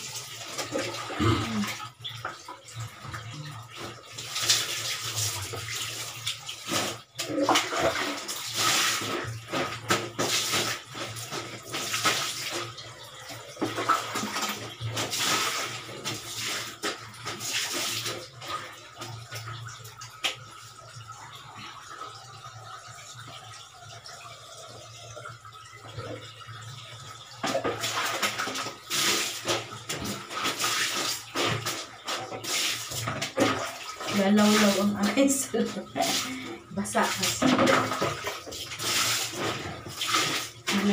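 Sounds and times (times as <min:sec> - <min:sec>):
water splashing into buckets: 0:00.0 - 0:40.9.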